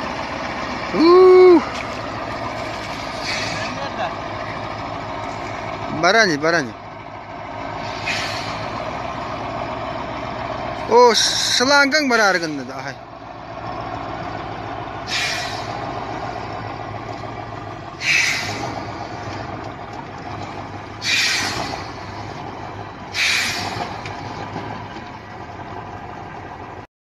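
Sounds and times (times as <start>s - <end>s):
truck engine running: 0.0s - 26.9s
compressed air hissing: 7.8s - 8.8s, 15.1s - 15.8s, 18.0s - 18.8s, 21.0s - 21.9s, 23.1s - 23.8s.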